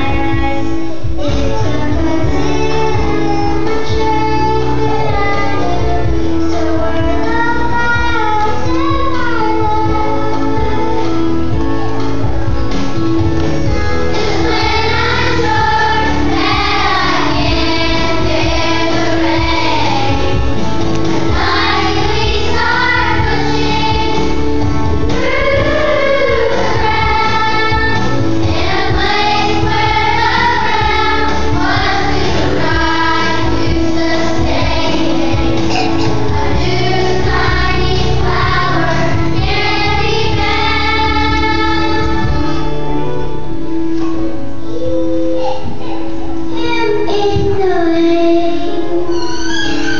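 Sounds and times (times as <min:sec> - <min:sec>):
instrumental accompaniment with bass: 0:00.0 - 0:49.9
children singing: 0:14.0 - 0:42.9.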